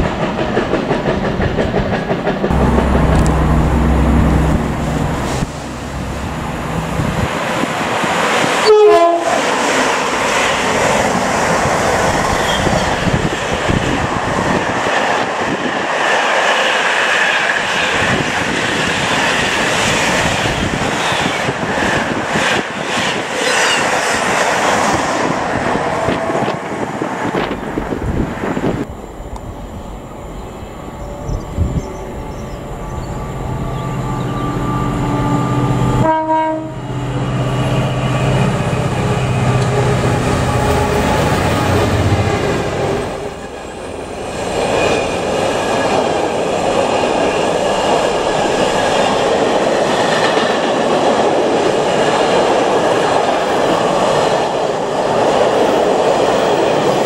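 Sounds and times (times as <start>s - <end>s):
diesel locomotive approaching: 0.0s - 57.0s
train rushing past on rails: 0.0s - 57.0s
two-tone train horn: 2.5s - 7.1s, 8.6s - 9.5s, 34.2s - 37.4s.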